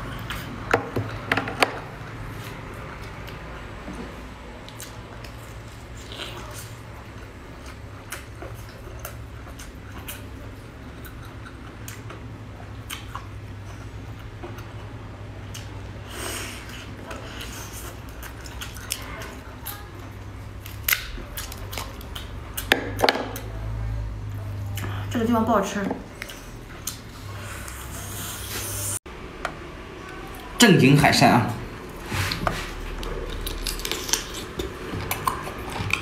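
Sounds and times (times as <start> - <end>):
wet chewing mouth sounds: 4.6 - 22.8, 31.9 - 36.0.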